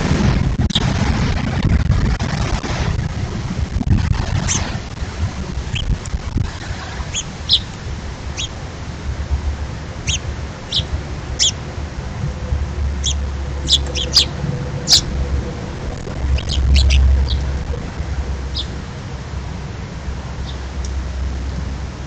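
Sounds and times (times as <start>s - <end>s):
steady low rumble: 0.0s - 22.0s
small birds chirping: 4.4s - 4.7s, 5.7s - 8.6s, 10.0s - 11.6s, 12.9s - 15.2s, 16.0s - 17.7s, 18.4s - 18.8s, 20.4s - 21.0s.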